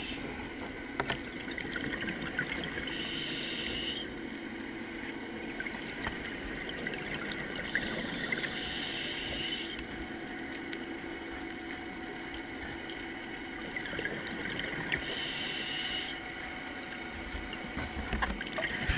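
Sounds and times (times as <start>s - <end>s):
underwater low hum: 0.0s - 18.9s
bubbling hiss: 1.7s - 4.1s, 5.6s - 10.1s, 13.7s - 16.3s.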